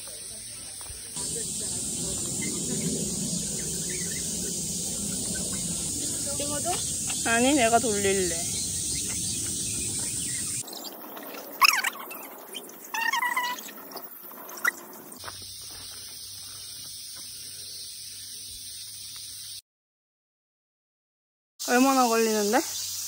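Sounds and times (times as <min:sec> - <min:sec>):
steady background noise: 0:01.2 - 0:15.2.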